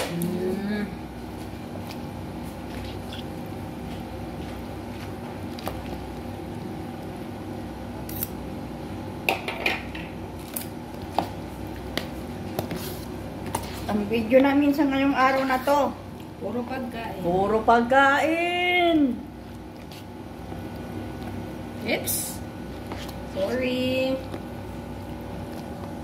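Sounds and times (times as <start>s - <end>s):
steady low hum: 0.0s - 26.0s
wet squishing of stirred salad: 1.3s - 7.2s, 10.4s - 14.6s, 19.2s - 26.0s.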